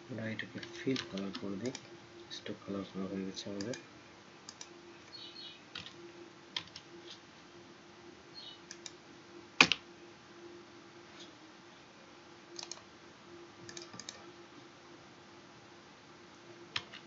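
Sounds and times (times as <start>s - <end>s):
faint steady hum: 0.0s - 17.0s
mouse and keyboard clicks: 8.7s - 9.0s, 12.6s - 12.8s, 13.6s - 14.2s.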